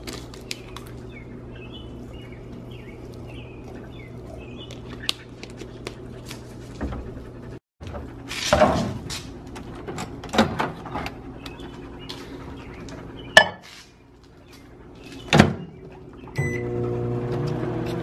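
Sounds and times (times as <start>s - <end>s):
microwave oven humming: 16.3s - 18.0s.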